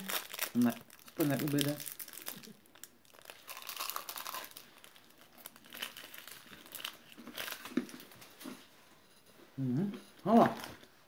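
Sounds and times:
wrapper crinkling: 0:00.0 - 0:08.4.

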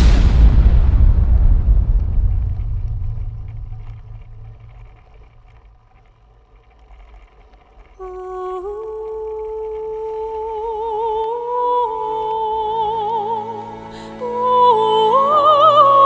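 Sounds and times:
deep rumble of a boom: 0:00.0 - 0:06.7.

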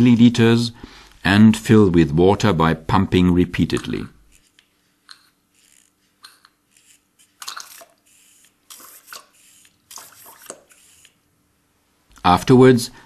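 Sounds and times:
syringe trigger pumping: 0:03.8 - 0:11.3.

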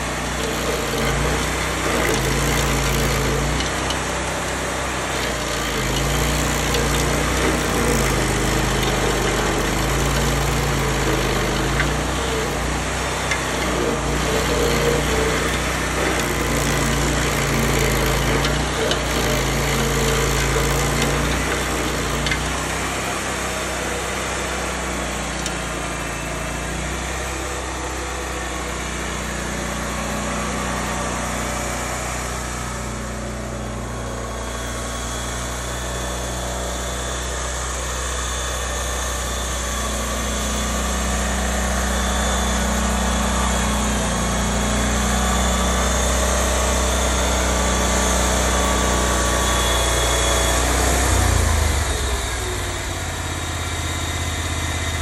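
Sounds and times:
stump grinder engine running: 0:00.0 - 0:55.0.

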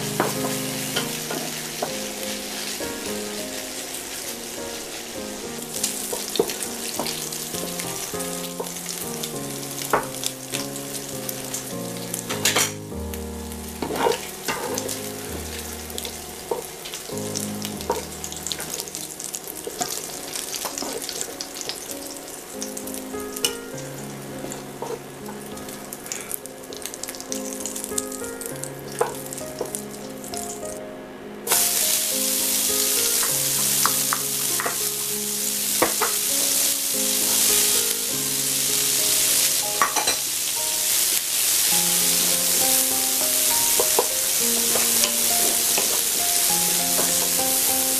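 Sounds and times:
bacon sizzling in pan: 0:00.0 - 0:30.8, 0:31.5 - 0:47.9
vegetables frying in fat: 0:00.0 - 0:30.8, 0:31.5 - 0:47.9
soft background music: 0:00.0 - 0:47.9
utensils scraping a pan: 0:13.8 - 0:14.8.

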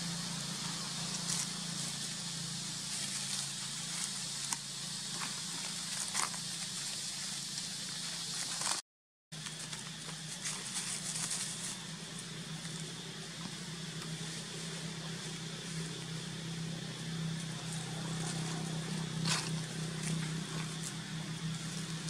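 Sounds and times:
low mechanical hum: 0:00.0 - 0:08.8, 0:09.4 - 0:22.0.

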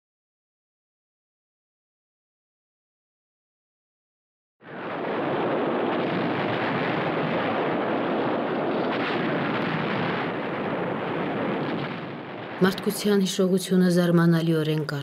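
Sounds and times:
dense explosion rumble: 0:04.6 - 0:14.2.

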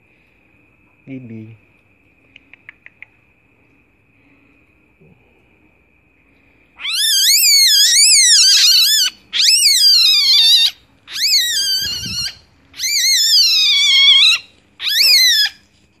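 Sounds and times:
civet cub distress calls: 0:06.8 - 0:15.7.

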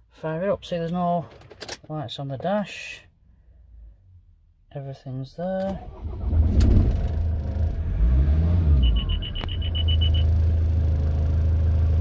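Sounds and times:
diesel engine starting and idling: 0:05.6 - 0:12.0
high electronic beeps: 0:08.8 - 0:10.3.

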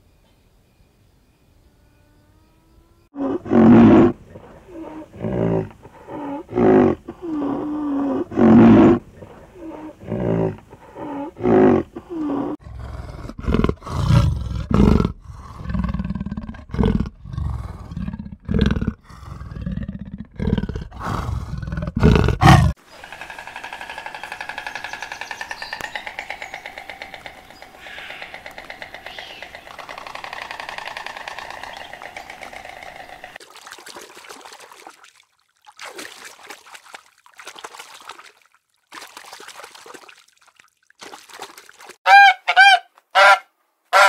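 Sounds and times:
rhinoceros calling: 0:22.1 - 0:33.4
cheetah calls: 0:22.4 - 0:33.3.

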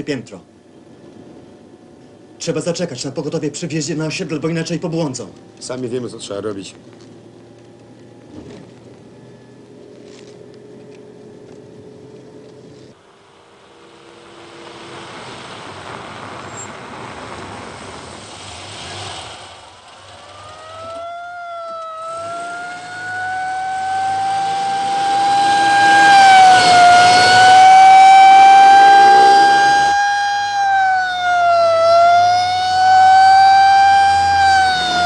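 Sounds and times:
vehicle rumble: 0:00.0 - 0:35.0
emergency siren wailing: 0:20.1 - 0:35.0.

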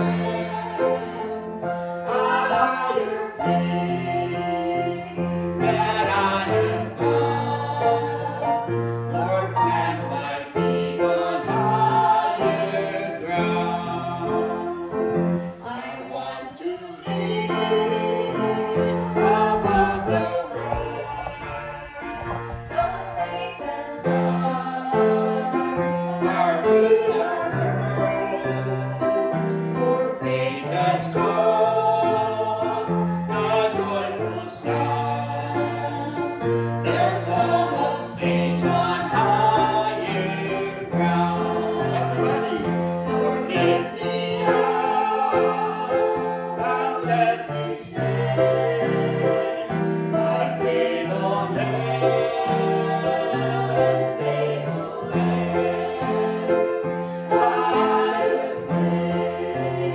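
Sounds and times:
grand piano: 0:00.0 - 0:59.9
group singing together: 0:00.0 - 0:59.9
woman singing: 0:19.8 - 0:25.8.

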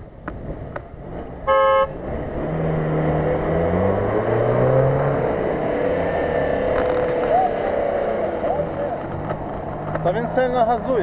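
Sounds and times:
car horn toot: 0:01.4 - 0:02.0
engine revving: 0:01.5 - 0:11.0.

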